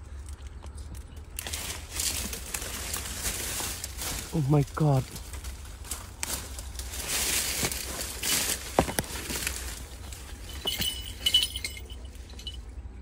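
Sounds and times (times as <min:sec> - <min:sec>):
twigs snapping: 0:00.0 - 0:10.3
leaves and twigs rustling: 0:00.0 - 0:13.0.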